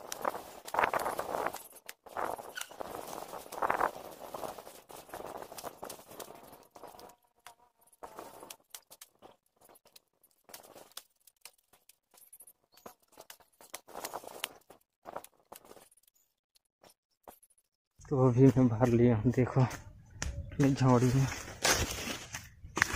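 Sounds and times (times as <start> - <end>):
rustling of seedlings: 0.0 - 16.4, 18.1 - 22.9
scattered clicks: 4.9 - 17.4.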